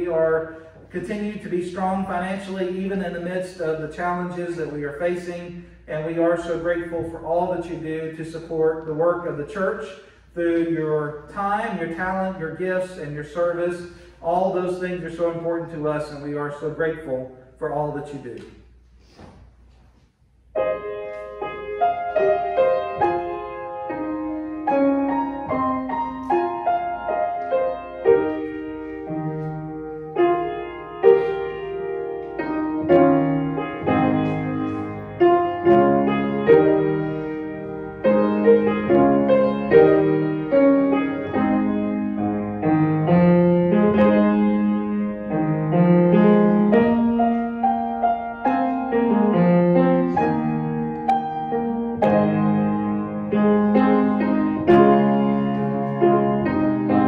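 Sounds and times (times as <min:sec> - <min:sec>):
piano music: 0:00.0 - 0:17.0, 0:20.5 - 0:57.0.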